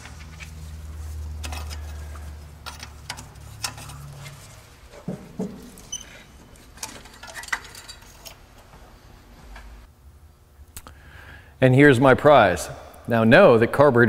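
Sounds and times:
clicks scrapes and rattles of fittings: 0.0 - 8.8.

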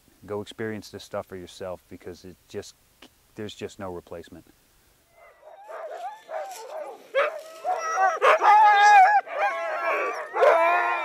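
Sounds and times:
dogs barking and howling: 5.2 - 11.0.

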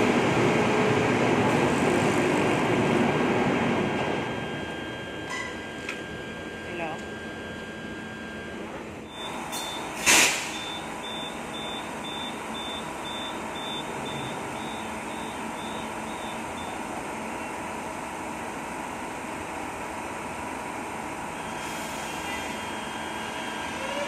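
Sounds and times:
stopped train humming: 0.0 - 24.0
high warning beeps: 4.1 - 16.8.

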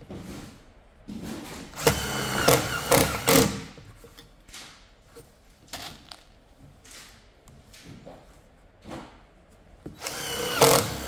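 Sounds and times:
impact driver driving screw: 1.8 - 3.6, 10.0 - 11.0.

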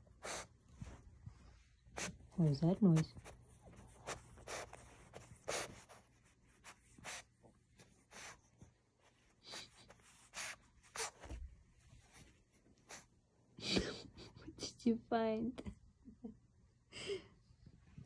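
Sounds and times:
puppy sniffing into blanket: 0.0 - 13.2.

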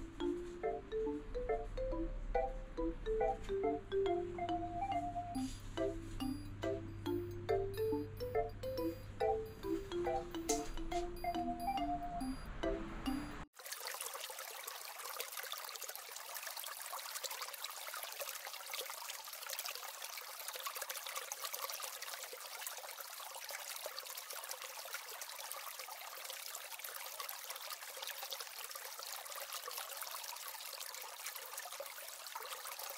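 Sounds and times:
trickle of running water: 13.5 - 32.9.

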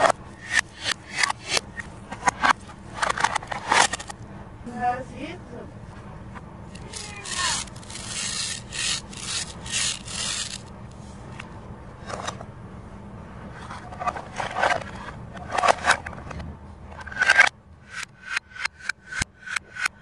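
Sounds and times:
plastic clicks and scrapes: 0.0 - 4.2, 6.8 - 10.7
plastic toys rasping together: 6.7 - 10.7.

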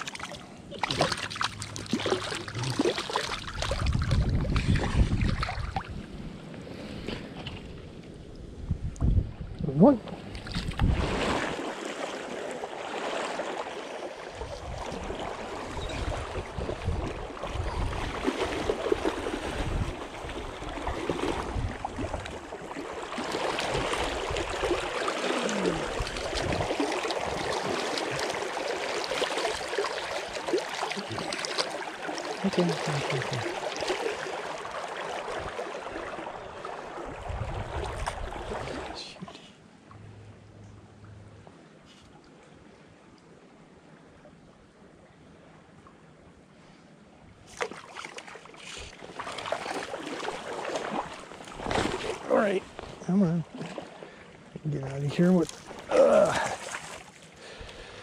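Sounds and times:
creek water rushing: 10.8 - 39.3, 48.6 - 58.0.

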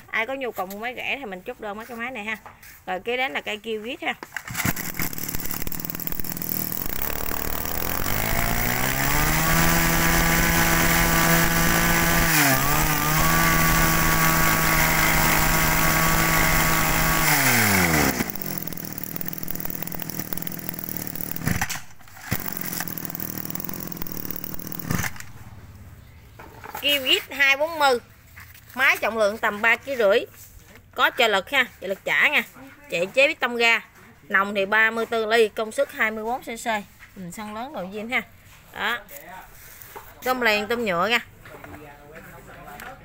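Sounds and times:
brush cutter engine revving: 4.4 - 25.9.

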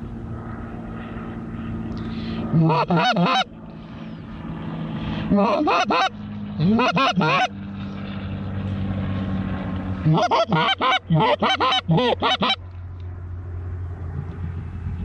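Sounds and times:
goose call honks: 2.6 - 3.5, 5.3 - 7.5, 10.0 - 12.6.

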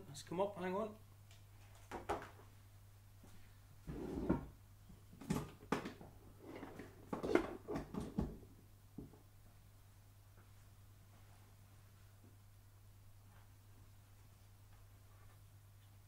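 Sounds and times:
objects knocking and clunking: 1.8 - 2.4, 5.1 - 9.3.

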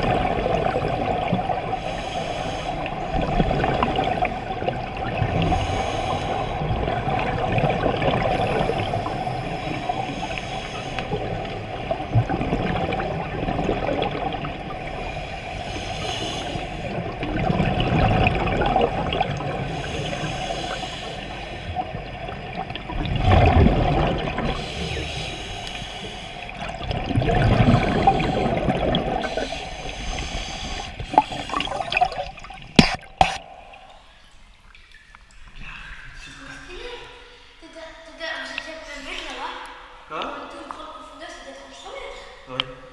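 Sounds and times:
bubbles gurgling underwater: 0.0 - 1.9, 2.8 - 15.0, 16.8 - 20.1, 21.7 - 25.1, 26.5 - 34.0
scuba regulator breathing: 1.7 - 3.4, 5.4 - 7.0, 8.2 - 11.9, 14.8 - 17.1, 19.4 - 22.0, 24.4 - 32.0.

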